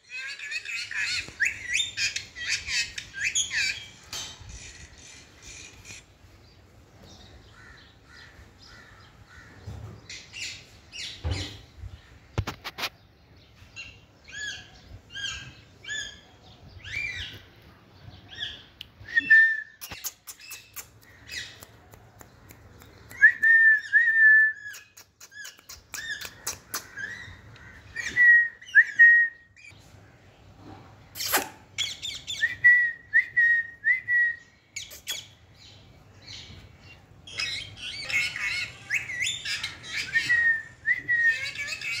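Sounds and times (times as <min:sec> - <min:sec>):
parakeet chirping and squawking: 0:00.0 - 0:06.2, 0:37.3 - 0:40.2, 0:41.3 - 0:42.0.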